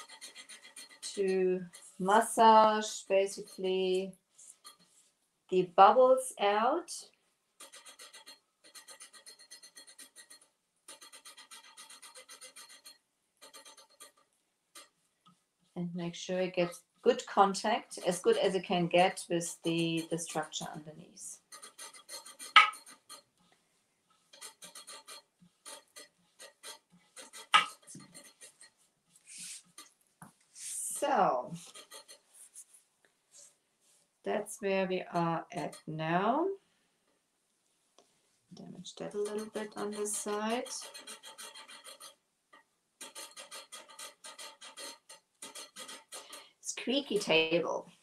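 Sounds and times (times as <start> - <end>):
hands rubbing paper squeaking: 0.0 - 2.4, 7.6 - 14.2, 24.2 - 29.9, 31.5 - 32.8, 39.2 - 42.1, 43.0 - 46.4.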